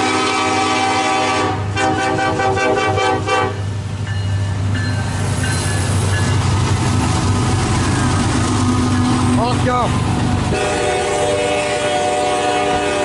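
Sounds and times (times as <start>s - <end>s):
train air horn toots: 0.0s - 3.7s, 10.5s - 13.0s
train rumble: 0.0s - 13.0s.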